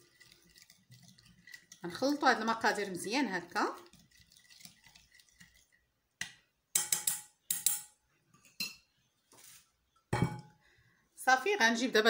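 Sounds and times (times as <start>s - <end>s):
spoon scraping bowl: 0.0s - 5.8s
spoon clinking on ceramic bowl: 6.8s - 8.0s, 10.2s - 10.5s.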